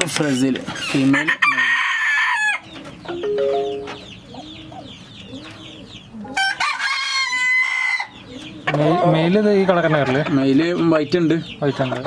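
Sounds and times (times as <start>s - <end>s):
chickens clucking: 0.0s - 12.0s
rooster crowing: 1.2s - 2.6s, 6.4s - 8.1s.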